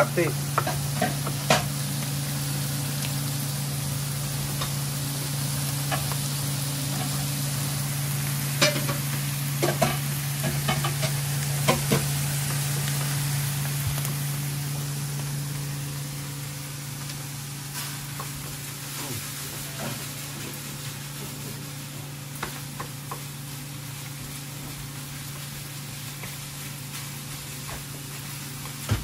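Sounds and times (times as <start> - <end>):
meat sizzling on griddle: 0.0 - 29.0.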